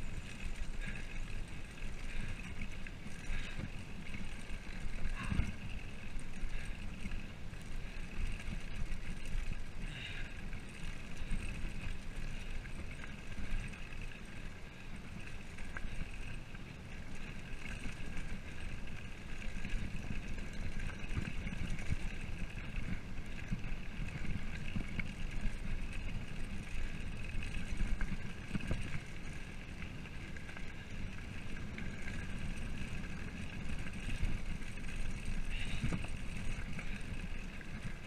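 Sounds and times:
bike rattling on gravel: 0:00.0 - 0:38.0.

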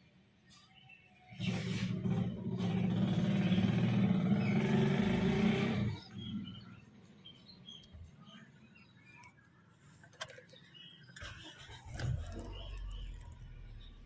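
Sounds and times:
starter motor cranking engine: 0:01.4 - 0:06.2, 0:11.1 - 0:14.0.

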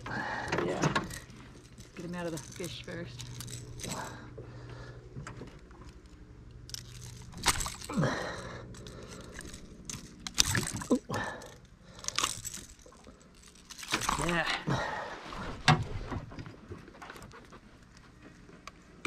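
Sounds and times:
pliers clicking and rattling on hooks: 0:00.0 - 0:04.3, 0:05.5 - 0:14.7.

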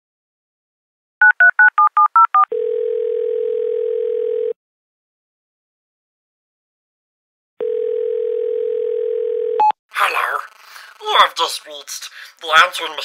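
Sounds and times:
touch-tone dialing beeps: 0:01.3 - 0:04.6
telephone ringback tone: 0:02.1 - 0:04.6, 0:07.6 - 0:09.7.

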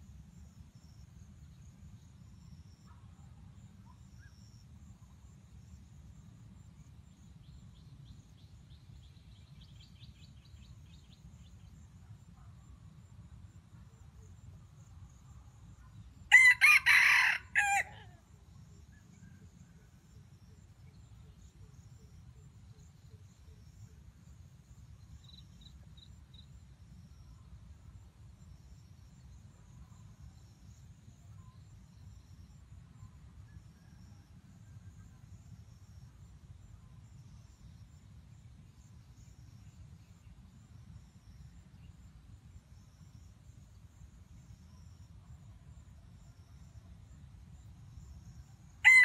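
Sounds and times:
rooster crowing: 0:16.3 - 0:18.2.

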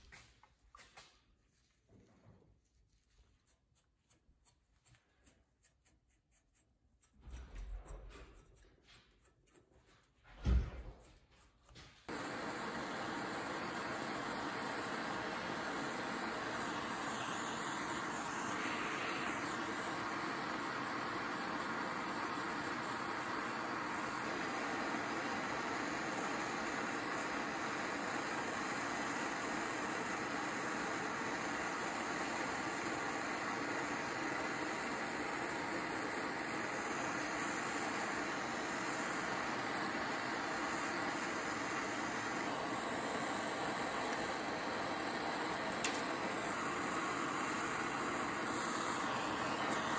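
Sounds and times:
gas torch flame burning: 0:07.0 - 0:49.9.

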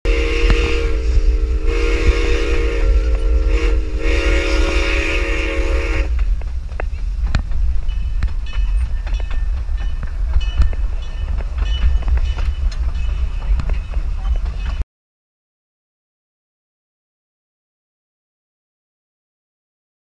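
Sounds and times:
steam locomotive chime whistle: 0:00.1 - 0:06.2
train wheels rumbling on rails: 0:00.1 - 0:14.8
wind rumble on microphone: 0:00.1 - 0:14.8.

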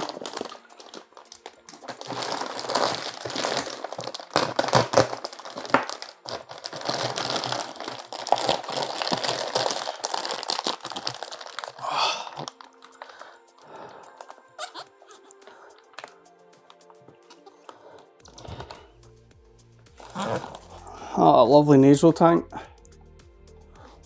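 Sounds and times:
plastic bag crinkling: 0:00.0 - 0:16.2, 0:17.4 - 0:18.9, 0:20.0 - 0:20.9.

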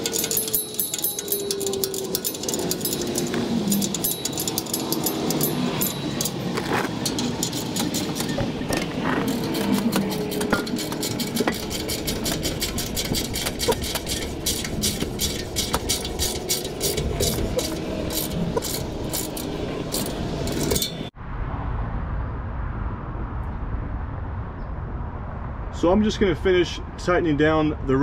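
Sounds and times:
ratcheting wrench clicking: 0:00.0 - 0:21.0
low rumble: 0:01.0 - 0:27.1.

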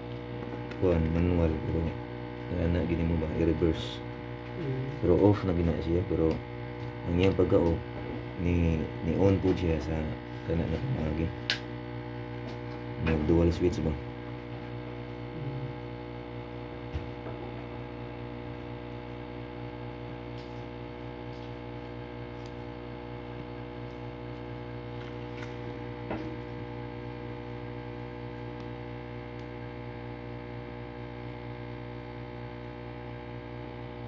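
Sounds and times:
electrical hum: 0:00.0 - 0:34.0.

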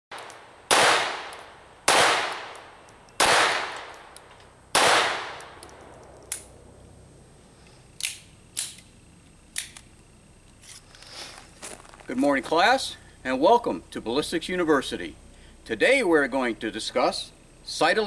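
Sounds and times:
pistol shots: 0:00.1 - 0:06.5.

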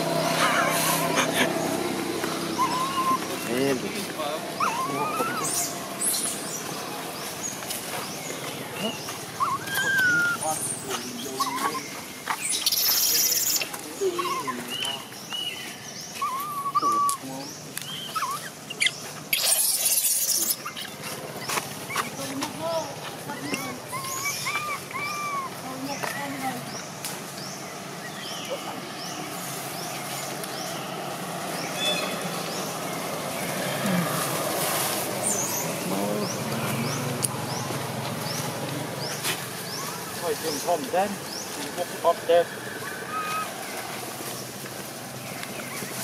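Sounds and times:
high rising chirping call: 0:00.0 - 0:07.6, 0:08.2 - 0:26.0, 0:35.2 - 0:44.4
loud hissing rush of noise: 0:00.0 - 0:09.4, 0:28.8 - 0:45.4
outdoor background noise: 0:00.0 - 0:46.0
infant monkey crying: 0:00.3 - 0:01.8, 0:02.4 - 0:03.5, 0:04.6 - 0:06.1, 0:09.4 - 0:14.8, 0:16.2 - 0:17.3, 0:18.0 - 0:22.3, 0:23.2 - 0:25.7, 0:42.7 - 0:43.6.

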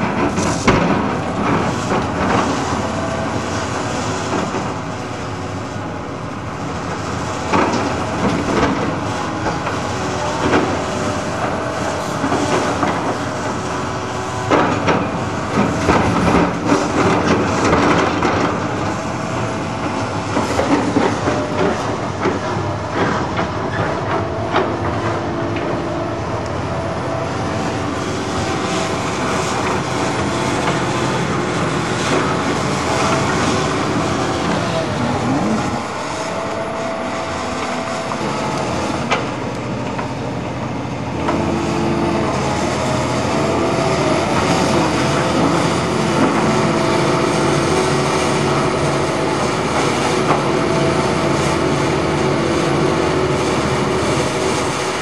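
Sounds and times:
clanks and rattles of loading rubbish: 0:00.0 - 0:05.0, 0:07.4 - 0:26.4
excavator diesel engine running: 0:00.0 - 0:55.0.

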